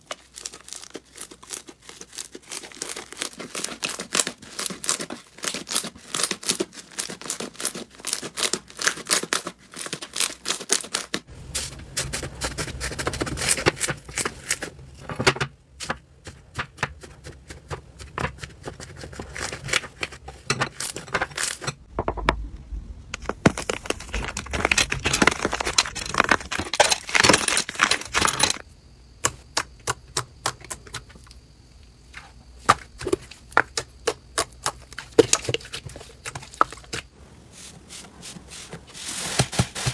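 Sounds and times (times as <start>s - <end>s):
hands squishing slime: 0.0s - 14.7s.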